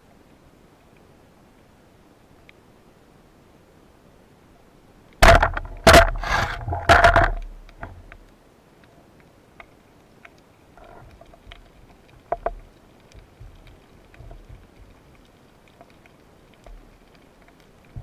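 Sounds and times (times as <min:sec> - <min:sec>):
underwater clicks and crackle: 0:05.1 - 0:18.0
underwater knocks: 0:05.2 - 0:08.1, 0:12.2 - 0:12.6, 0:13.2 - 0:15.0.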